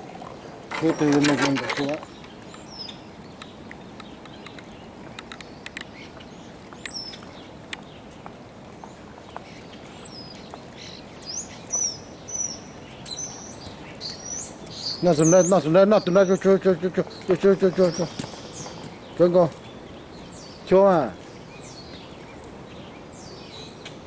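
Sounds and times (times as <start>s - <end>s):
river flowing: 0.0s - 24.0s
songbirds chirping: 0.0s - 24.0s
faint ticks: 1.9s - 6.0s.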